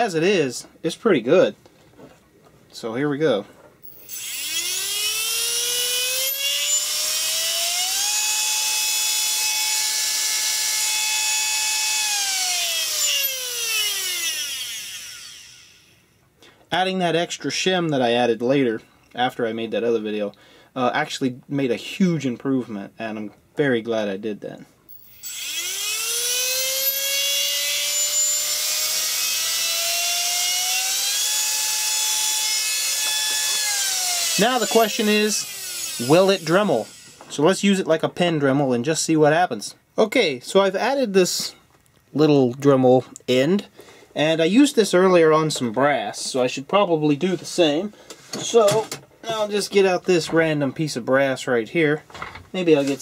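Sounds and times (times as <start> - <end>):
spindle motor whining: 3.8 - 16.0, 24.9 - 37.4.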